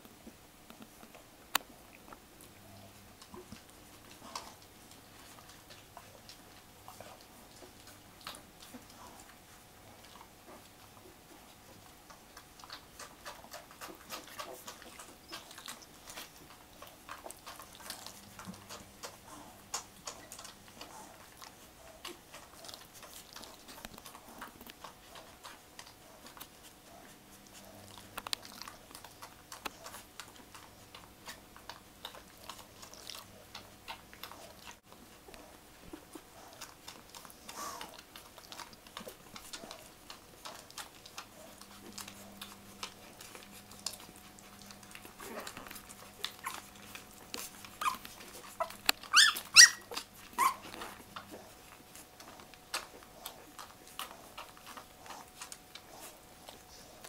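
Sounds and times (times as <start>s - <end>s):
faint steady hum: 0.0s - 57.0s
puppies squeaking and whimpering: 13.5s - 20.5s, 44.8s - 51.3s
puppies high squeals: 48.6s - 50.7s.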